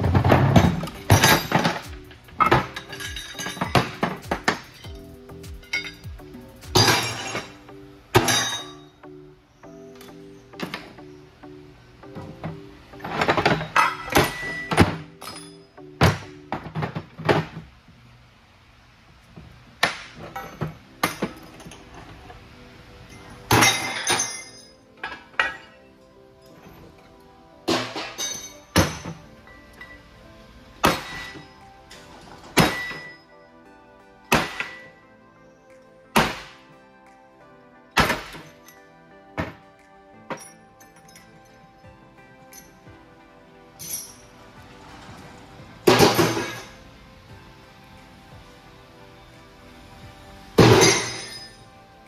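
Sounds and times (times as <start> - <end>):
background music: 0.0 - 52.0
metal gears clinking and clanking: 0.2 - 7.6.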